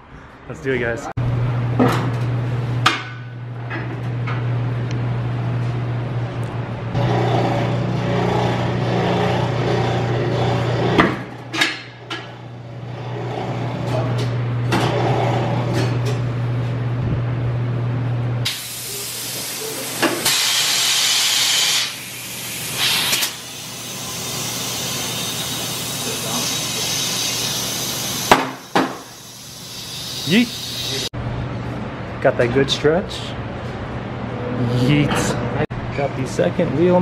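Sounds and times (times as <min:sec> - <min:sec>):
motor hum: 0:03.4 - 0:11.4
compressed air hissing: 0:18.5 - 0:31.1.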